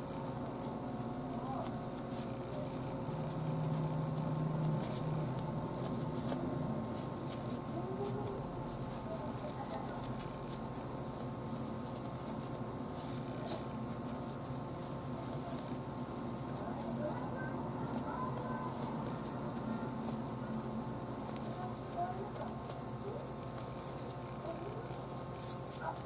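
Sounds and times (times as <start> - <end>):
hands shaping bread dough: 0.0 - 26.0
steady background hum: 0.0 - 26.0.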